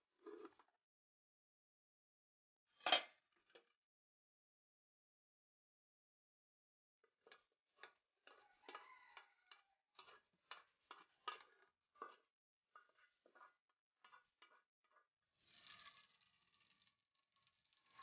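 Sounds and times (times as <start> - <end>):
wooden spoon scraping metal pot: 7.2 - 18.0
oil pouring into pot: 12.8 - 18.0.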